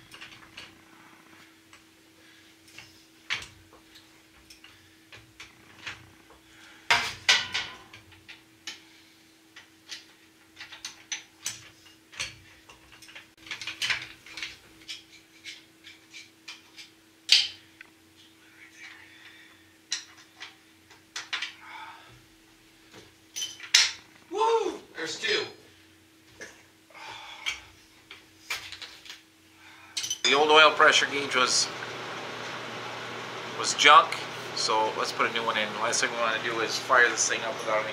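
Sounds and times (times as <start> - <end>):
faint steady hum: 0.0 - 37.9
metal clanks and knocks: 6.9 - 8.4.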